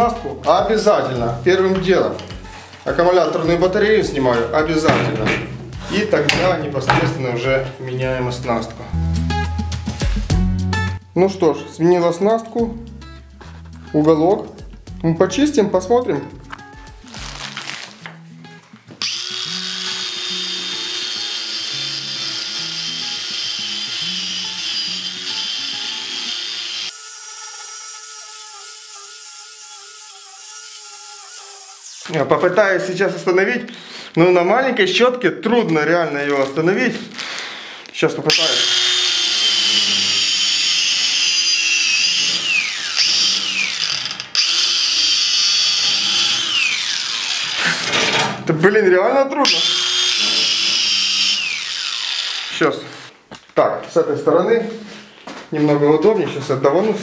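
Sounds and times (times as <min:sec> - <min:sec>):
angle grinder whining: 0:19.0 - 0:32.2, 0:38.3 - 0:48.1, 0:49.4 - 0:53.1
angle grinder wire brush scrubbing: 0:27.3 - 0:32.2.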